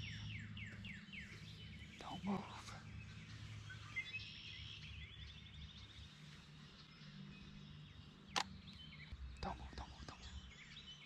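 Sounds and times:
faint low hum: 0.0 - 11.0
songbirds singing: 0.0 - 11.0
sharp click: 8.3 - 8.6.

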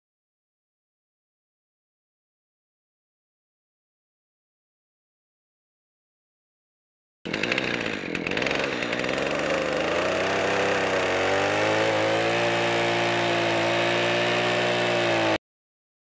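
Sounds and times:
chainsaw cutting log: 7.3 - 15.4.

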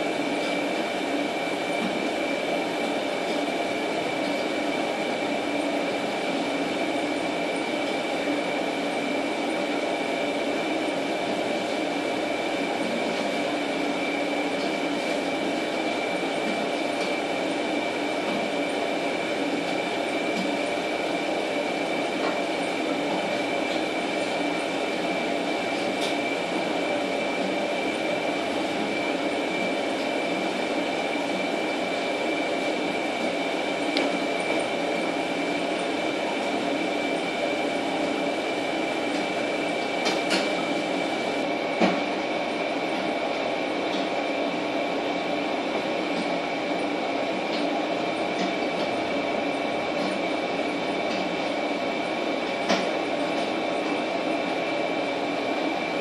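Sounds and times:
machinery hum and hiss: 0.0 - 56.0.

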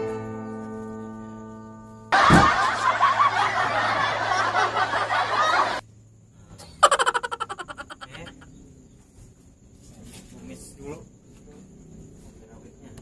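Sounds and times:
rapid ha-ha-ha laugh: 2.2 - 5.8, 6.8 - 8.5
person laughing: 6.8 - 8.5.

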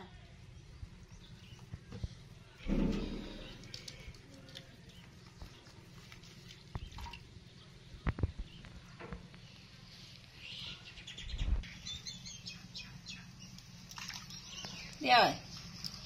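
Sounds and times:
bathwater splashing in plastic basin: 2.7 - 7.3, 13.8 - 15.0.

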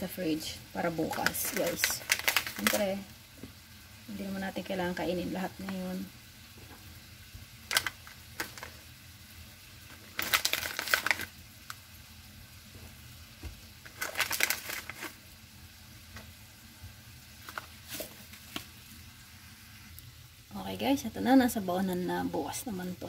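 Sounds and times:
steak sizzling in a pan: 0.0 - 23.0
plastic pouch crinkling: 1.0 - 3.0, 7.7 - 8.8, 9.9 - 11.8, 13.8 - 15.2.

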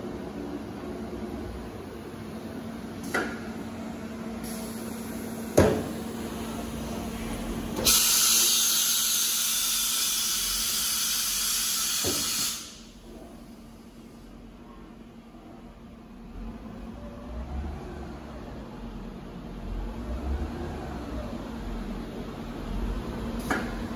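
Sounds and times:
machine electrical hum: 0.0 - 23.9
compressed air hissing: 7.8 - 12.9.

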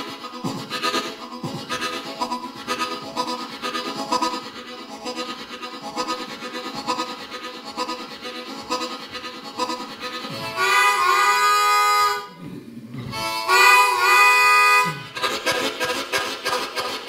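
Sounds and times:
harmonica playing chugging rhythm: 0.0 - 12.4, 13.1 - 17.0.

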